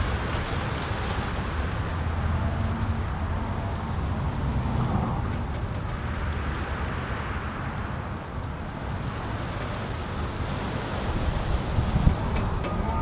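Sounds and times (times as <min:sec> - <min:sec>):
wind buffeting microphone: 0:00.0 - 0:13.0
wind rushing through pine tree: 0:00.0 - 0:13.0.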